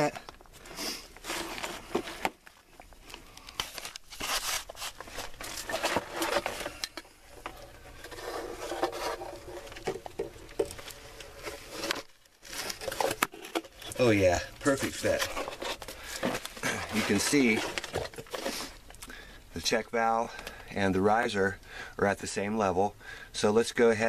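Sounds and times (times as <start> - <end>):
plastic scraping and rustling: 0.0 - 19.0.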